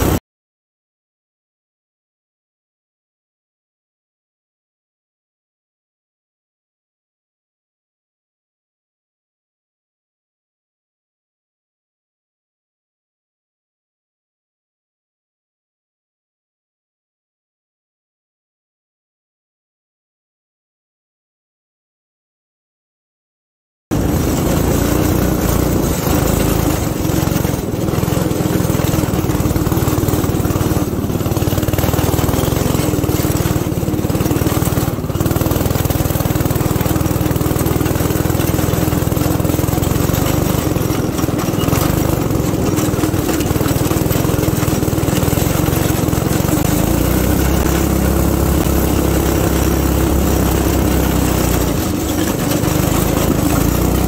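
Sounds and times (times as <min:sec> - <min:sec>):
go-kart engine running: 0:00.0 - 0:00.2, 0:23.9 - 0:54.0.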